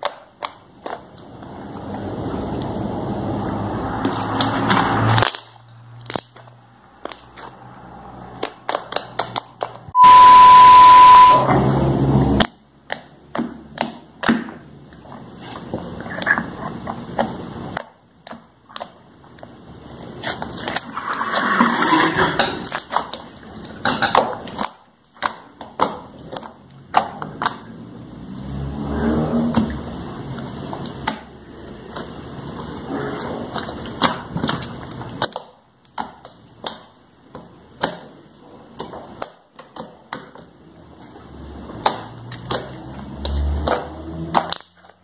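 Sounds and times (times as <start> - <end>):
sticky clicks and popping: 8.3 - 10.0
steady beep: 10.0 - 11.5
loud harsh noise burst: 10.0 - 11.6.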